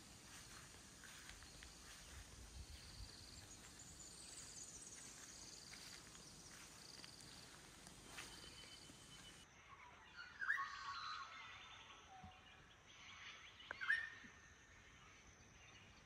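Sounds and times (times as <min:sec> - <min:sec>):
distant birds calling: 0:00.0 - 0:09.4
insects calling: 0:00.0 - 0:09.4.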